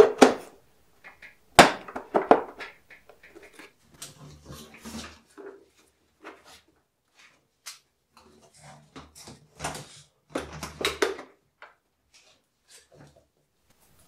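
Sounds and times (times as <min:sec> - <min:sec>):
plastic hose knocking and scraping: 0:01.1 - 0:06.5.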